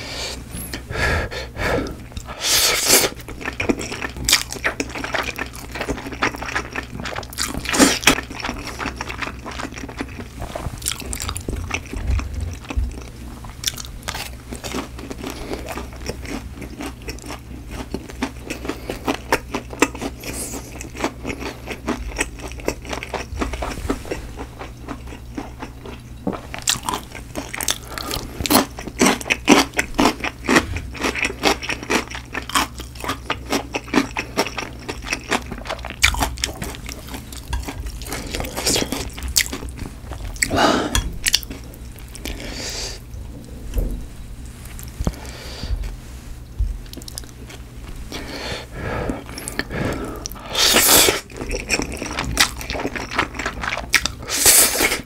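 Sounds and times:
crunchy bites and chewing: 3.1s - 10.2s, 10.8s - 42.4s.

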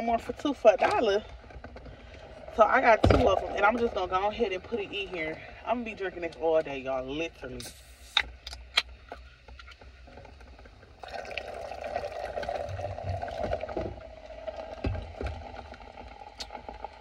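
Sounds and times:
soda fizzing while poured: 11.0s - 17.0s.

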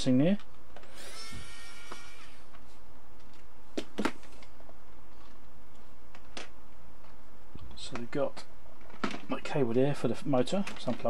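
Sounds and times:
electric screwdriver motor whirring: 0.8s - 2.5s.

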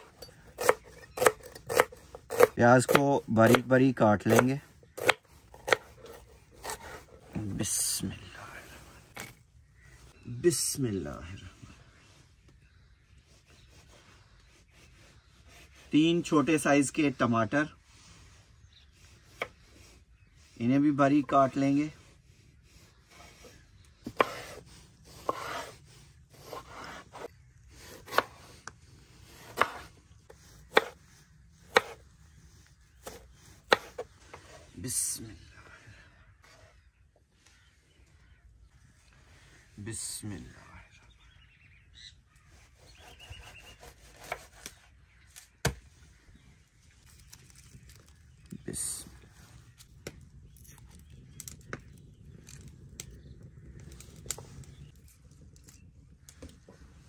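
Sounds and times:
knife chopping on wooden board: 0.6s - 3.7s, 4.3s - 7.0s, 24.1s - 24.6s, 25.2s - 25.8s, 29.4s - 29.9s, 30.7s - 31.0s, 31.7s - 32.0s, 33.0s - 34.1s, 43.0s - 44.7s
garlic skins crackling: 46.8s - 56.6s.

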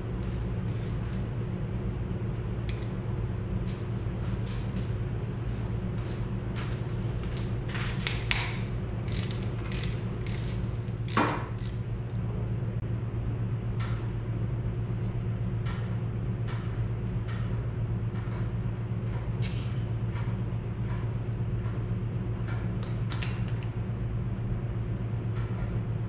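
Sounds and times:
steady low hum: 0.0s - 26.0s
bright metallic clink: 23.1s - 23.8s.

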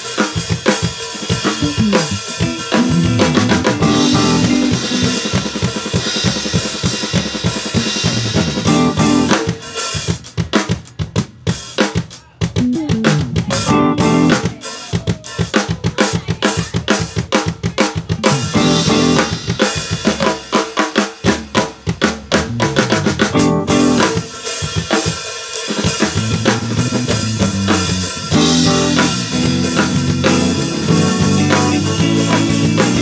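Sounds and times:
drum kit playing fast: 0.0s - 33.0s.

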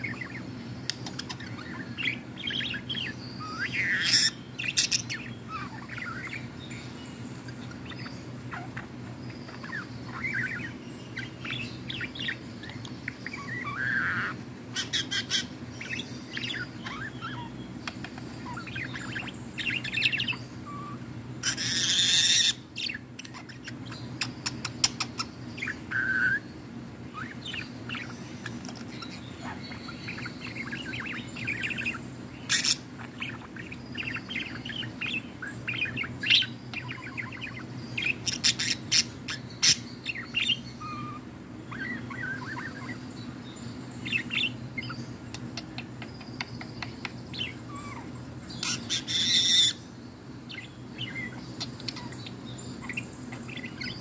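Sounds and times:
budgerigar chirping and warbling: 0.0s - 54.0s
harsh budgerigar squawk: 18.4s - 22.6s, 47.4s - 49.8s.

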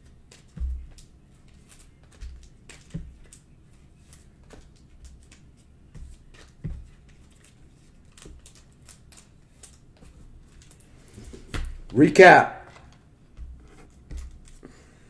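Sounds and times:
cards rustling in plastic sleeves: 0.0s - 15.0s
cards thumping on table: 0.3s - 3.4s, 4.1s - 7.2s, 11.2s - 12.0s, 12.6s - 14.8s.

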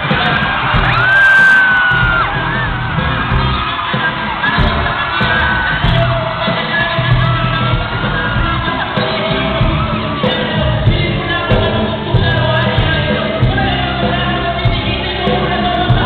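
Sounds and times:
audience shouting along: 0.0s - 10.9s
amplified vocals: 0.0s - 16.0s
live rock band music: 0.0s - 16.0s.

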